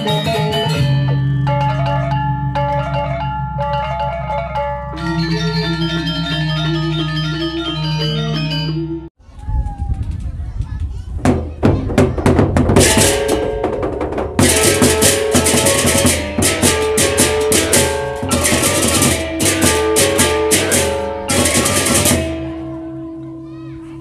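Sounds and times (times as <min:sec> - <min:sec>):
large barrel drums: 0:10.8 - 0:23.1
clashing hand cymbals: 0:14.4 - 0:22.8.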